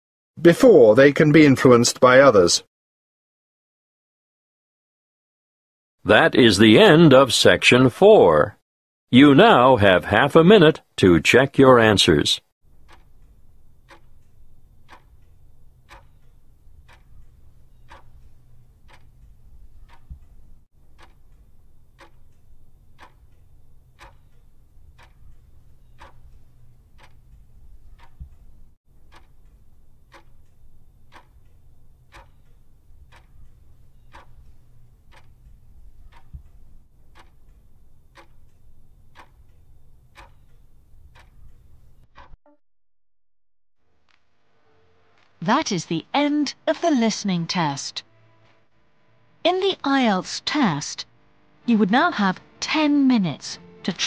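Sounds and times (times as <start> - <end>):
clock ticking: 12.7 - 42.4, 45.4 - 48.0, 49.4 - 54.0.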